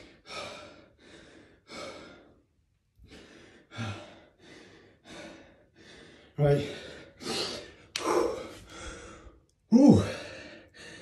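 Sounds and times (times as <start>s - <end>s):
man panting heavily: 0.0s - 11.0s.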